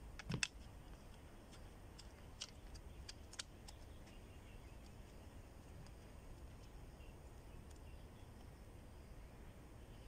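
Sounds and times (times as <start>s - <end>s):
antenna mount parts clicking: 0.2s - 0.7s
sharp ticks: 0.2s - 4.2s.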